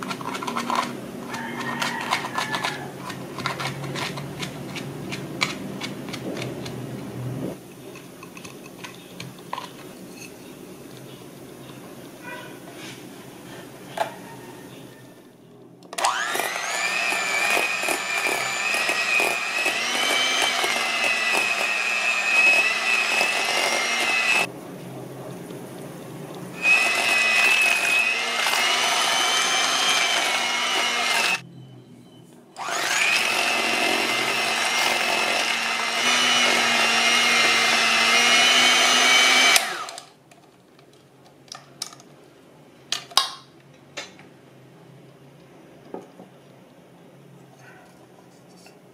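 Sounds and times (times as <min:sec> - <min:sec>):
electric hand mixer whining: 0:16.0 - 0:24.5, 0:26.5 - 0:31.4, 0:32.6 - 0:40.1.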